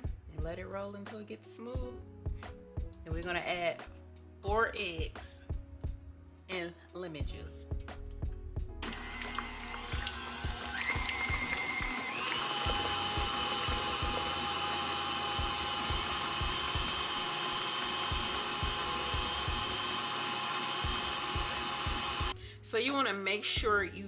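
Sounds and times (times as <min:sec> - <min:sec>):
stand mixer motor whining: 0:08.8 - 0:22.3.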